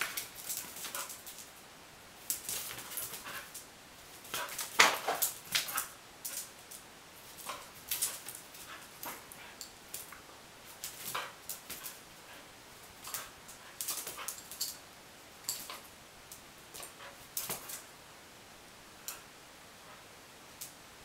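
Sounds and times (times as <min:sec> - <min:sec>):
dog claws clicking on tile floor: 0:00.0 - 0:01.6, 0:02.2 - 0:14.8, 0:15.4 - 0:17.9.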